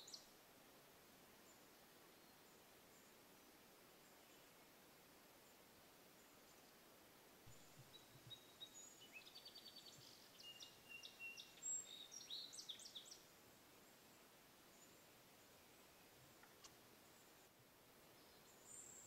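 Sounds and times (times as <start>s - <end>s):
songbird singing: 0.0s - 19.0s.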